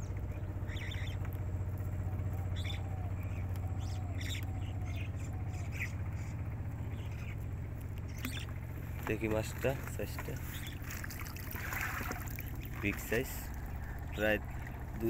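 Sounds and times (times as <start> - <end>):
bird chirps: 0.0 - 9.5, 10.2 - 11.1
boat engine humming: 0.0 - 15.0.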